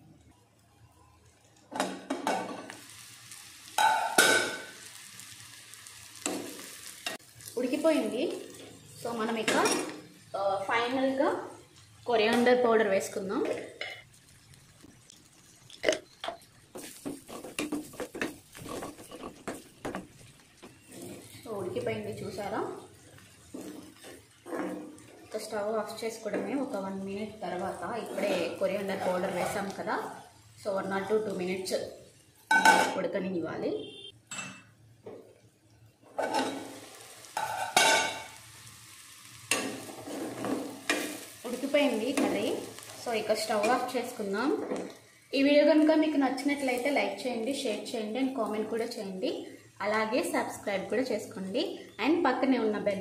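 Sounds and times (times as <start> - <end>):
curry sizzling in a pan: 0.0 - 53.0
spoon stirring and scraping pan: 13.4 - 25.6, 27.7 - 30.2, 36.0 - 38.4, 39.0 - 45.1
metal spoon scraping a pan: 16.8 - 19.7, 20.7 - 21.5, 23.2 - 25.3, 28.0 - 29.8, 36.1 - 36.7, 37.4 - 38.3, 39.5 - 41.4.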